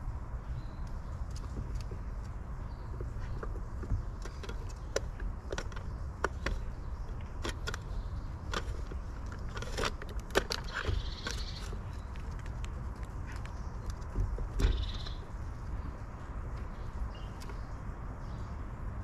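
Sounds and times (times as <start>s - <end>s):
small clicks and taps: 0.8s - 15.2s.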